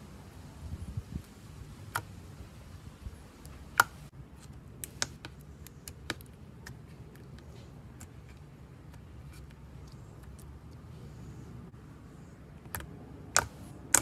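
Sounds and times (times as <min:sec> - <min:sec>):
slime popping and crackling: 0:04.8 - 0:06.9.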